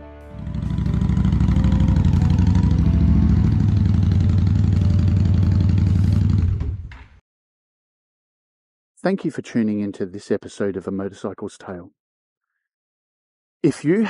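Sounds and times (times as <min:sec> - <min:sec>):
motorcycle engine running: 0:00.3 - 0:06.9.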